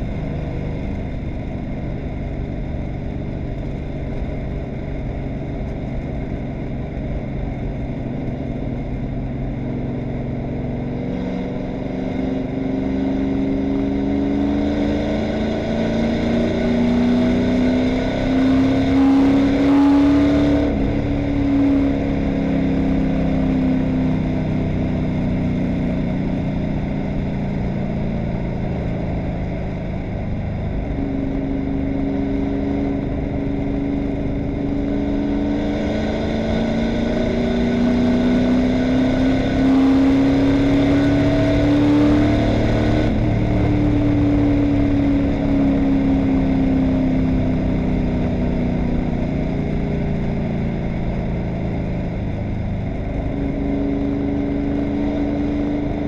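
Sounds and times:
race car engine accelerating: 9.7s - 27.3s, 31.6s - 56.0s.

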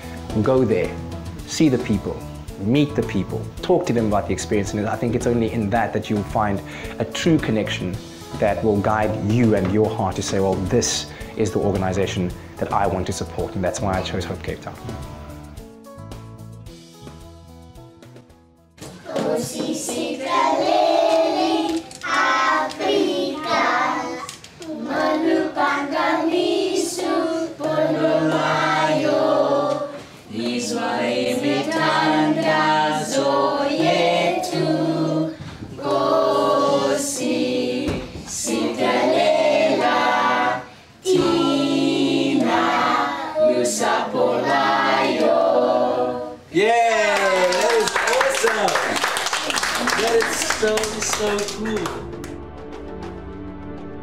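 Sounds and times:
adult leading singing: 0.2s - 15.0s, 18.8s - 52.2s
children singing together: 18.9s - 46.5s.

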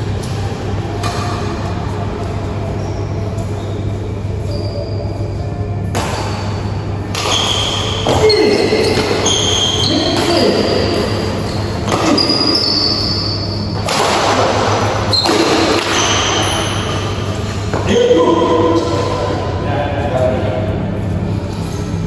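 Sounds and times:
racket hitting shuttlecock: 0.9s - 1.7s, 5.8s - 13.2s, 13.8s - 17.9s
sneakers squeaking on floor: 1.0s - 19.1s.

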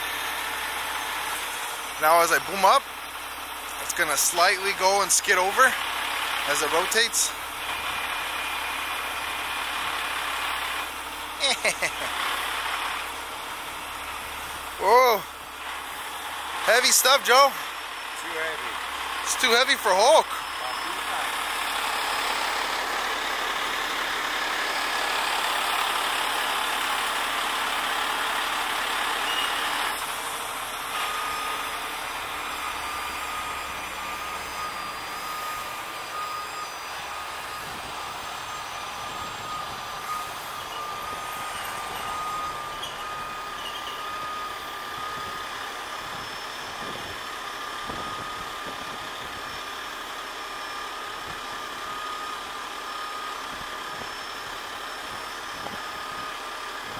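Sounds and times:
tow truck engine and hydraulics: 0.0s - 56.9s
thin high whine: 19.3s - 21.6s, 30.9s - 49.9s.

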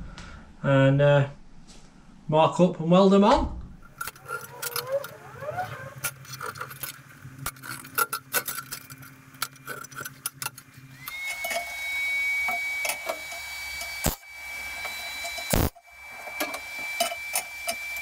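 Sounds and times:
rotary tool whining: 3.9s - 18.0s.

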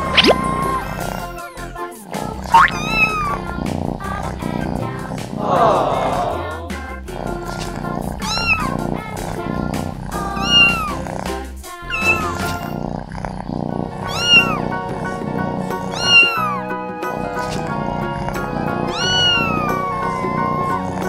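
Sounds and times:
kitten mewing: 0.0s - 0.9s, 2.5s - 3.5s, 8.2s - 8.8s, 10.3s - 11.0s, 11.8s - 12.8s, 14.0s - 14.7s, 15.8s - 16.6s, 18.8s - 20.2s
background music: 0.0s - 12.8s, 13.7s - 21.0s.

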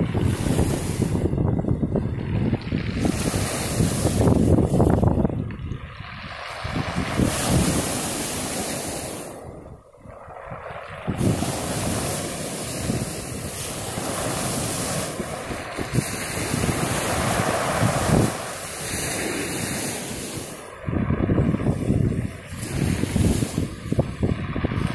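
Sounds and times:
waves breaking on pebble beach: 0.0s - 24.9s
wind buffeting microphone: 0.0s - 24.9s.

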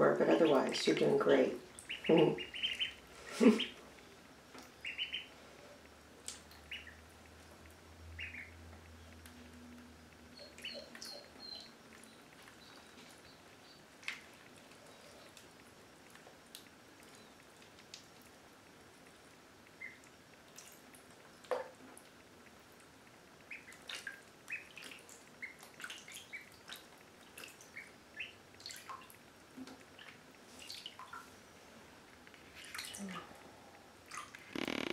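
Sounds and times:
small splashes and drips: 0.4s - 34.9s
ducklings peeping: 1.7s - 3.8s, 4.6s - 5.4s, 6.3s - 7.2s, 8.1s - 9.2s, 10.3s - 15.5s, 19.7s - 20.6s, 23.4s - 26.8s, 27.4s - 29.0s.

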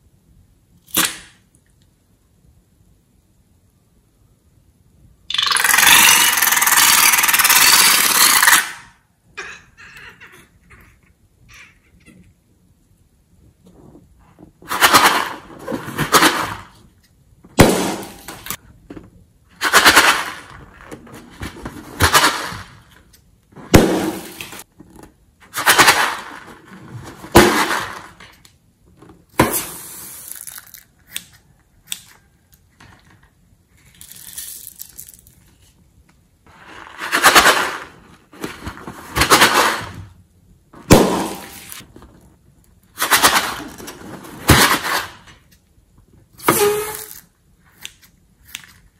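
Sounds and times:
balloon bursting: 17.6s - 18.6s, 23.6s - 24.6s, 40.8s - 41.8s.

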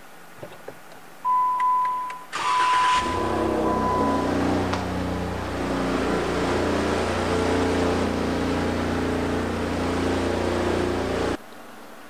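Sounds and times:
car engine idling: 2.3s - 11.4s.

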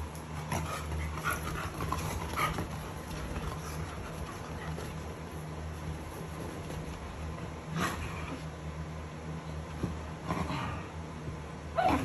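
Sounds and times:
dogs play-fighting: 0.0s - 8.7s, 9.6s - 12.0s
dog whining yips: 11.8s - 12.0s.

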